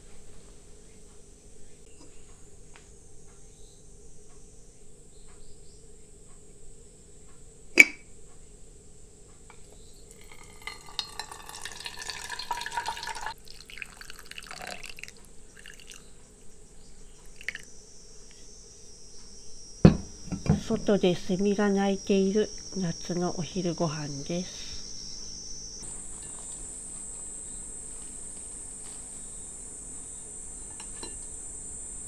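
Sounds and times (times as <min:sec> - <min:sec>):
cicadas buzzing: 0:00.7 - 0:32.0
drink poured over ice: 0:10.1 - 0:16.0
ice clinking in mug: 0:10.1 - 0:16.0.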